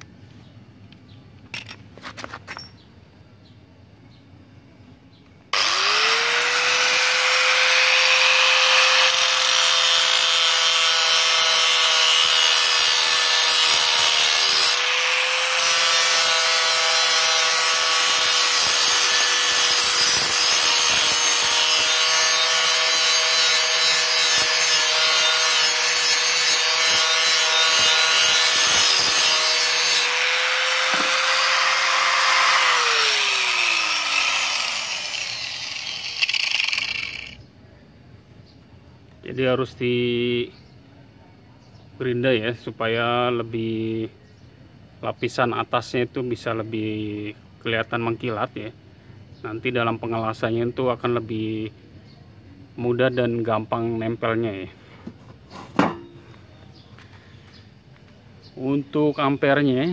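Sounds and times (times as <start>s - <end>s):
angle grinder grinding metal: 5.6s - 37.4s
grinder winding down: 5.6s - 37.4s.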